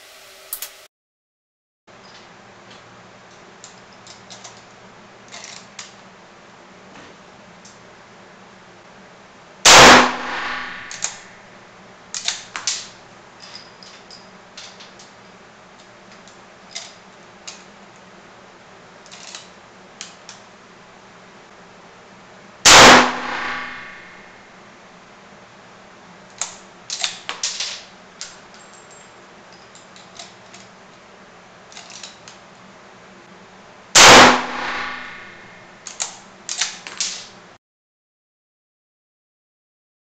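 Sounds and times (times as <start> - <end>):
rifle shots echoing: 9.7 - 11.4, 22.7 - 24.4, 34.0 - 35.6.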